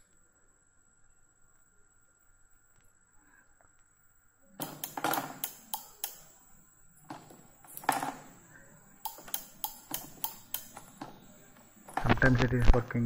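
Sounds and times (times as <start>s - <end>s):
push-button switches clicking: 4.6s - 6.3s, 9.0s - 11.3s.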